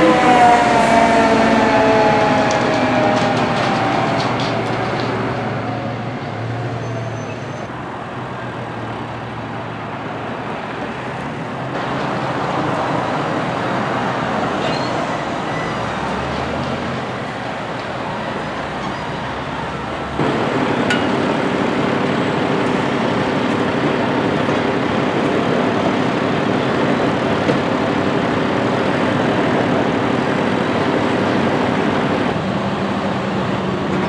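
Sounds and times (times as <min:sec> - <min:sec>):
road noise rush: 0:00.0 - 0:34.0
low engine drone: 0:19.9 - 0:34.0.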